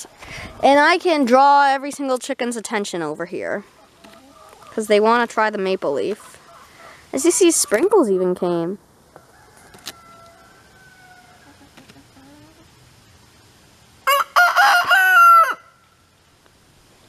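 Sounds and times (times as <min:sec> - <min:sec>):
faint chicken calls: 0:03.7 - 0:04.8, 0:09.1 - 0:12.8, 0:14.0 - 0:15.9
rooster crowing: 0:09.2 - 0:11.6, 0:14.0 - 0:15.8.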